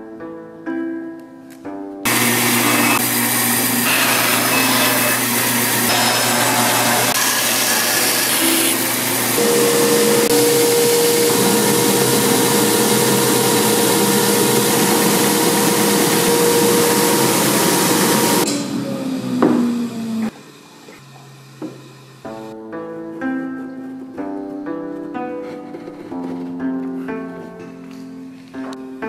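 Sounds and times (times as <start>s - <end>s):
belt sander grinding: 2.1s - 18.5s
band saw cutting wood: 2.1s - 20.3s.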